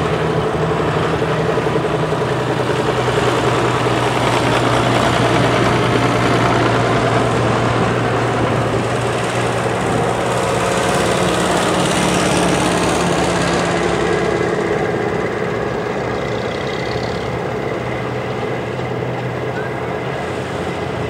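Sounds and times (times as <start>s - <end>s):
tractor engine running: 0.0s - 21.0s.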